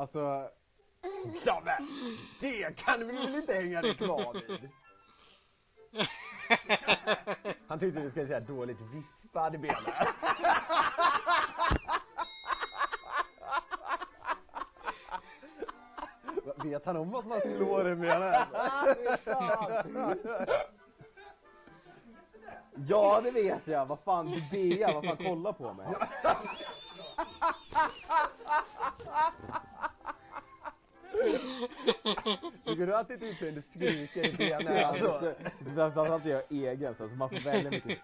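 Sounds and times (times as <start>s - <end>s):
men laughing hard: 3.1s - 4.7s, 6.0s - 7.6s, 9.7s - 21.4s, 24.4s - 35.8s, 37.4s - 38.0s
man laughing hard: 17.5s - 20.7s, 26.0s - 30.4s.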